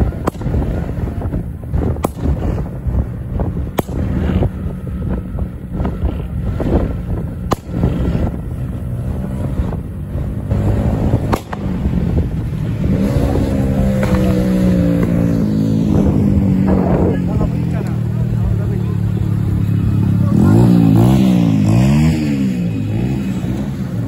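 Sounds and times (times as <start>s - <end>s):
sharp cracks: 0.0s - 4.6s, 5.8s - 8.4s, 10.5s - 15.6s
motorcycle engines running: 0.0s - 24.0s
wind buffeting microphone: 0.0s - 24.0s.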